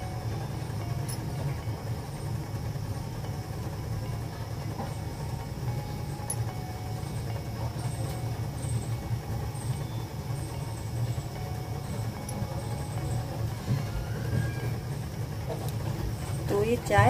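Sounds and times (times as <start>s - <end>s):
gas flame rumbling: 0.0s - 17.0s.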